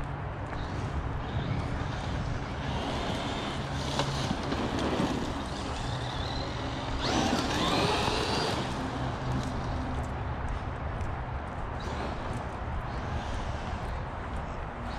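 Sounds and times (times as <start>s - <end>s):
tyre and ground noise: 0.0s - 14.9s
electric motor whining: 0.6s - 9.2s.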